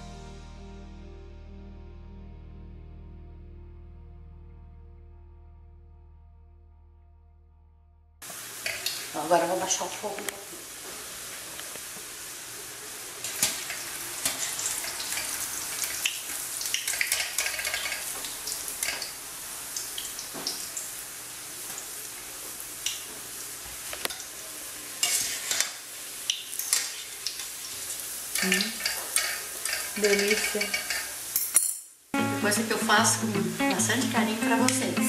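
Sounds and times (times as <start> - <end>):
dough frying in hot oil: 8.2 - 32.1
wire strainer clinking on pan: 28.4 - 31.8.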